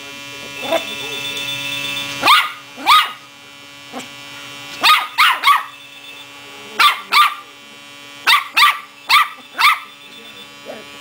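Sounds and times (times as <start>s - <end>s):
puppy yapping: 2.2s - 3.2s, 4.8s - 5.7s, 6.8s - 7.4s, 8.3s - 9.9s.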